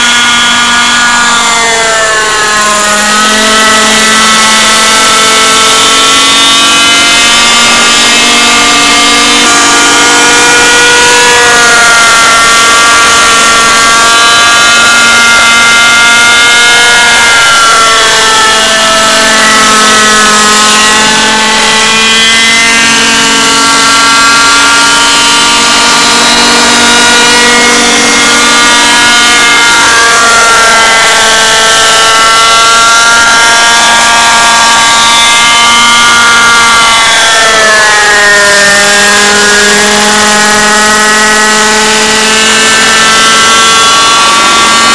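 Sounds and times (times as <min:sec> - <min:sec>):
model helicopter engine buzzing: 0:00.0 - 0:44.9.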